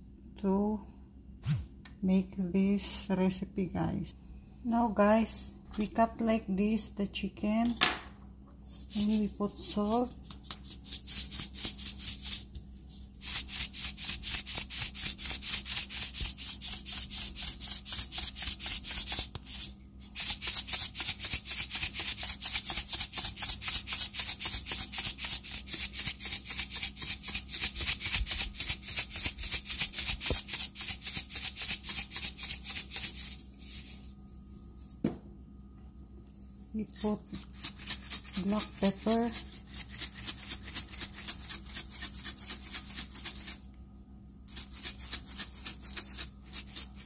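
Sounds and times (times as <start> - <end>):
salt grinder rasping: 8.8 - 12.5, 13.1 - 34.0, 37.0 - 43.6, 44.5 - 47.0.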